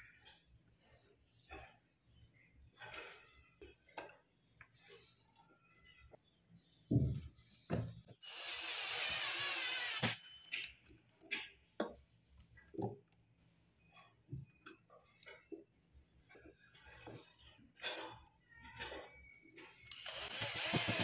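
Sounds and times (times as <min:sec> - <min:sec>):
cordless drill running: 0:08.2 - 0:10.2, 0:19.9 - 0:21.0.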